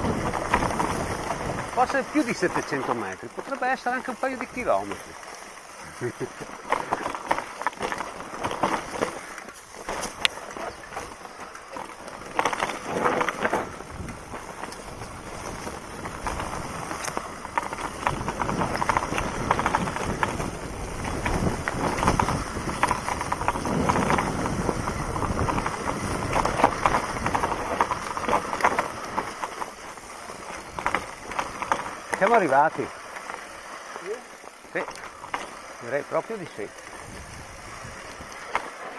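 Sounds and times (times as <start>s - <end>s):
bike rattling over bumps: 0.0s - 38.9s
bike tyres crunching over stones: 0.0s - 38.9s.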